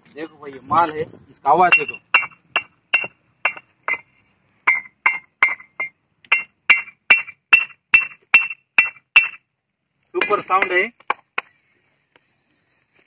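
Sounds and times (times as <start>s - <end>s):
bricks clinking together: 1.7s - 9.4s.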